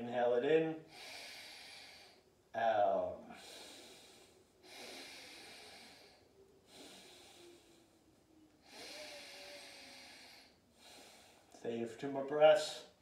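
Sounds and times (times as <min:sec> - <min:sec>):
person breathing through nose: 0:00.8 - 0:02.2, 0:03.3 - 0:08.0, 0:08.6 - 0:11.6.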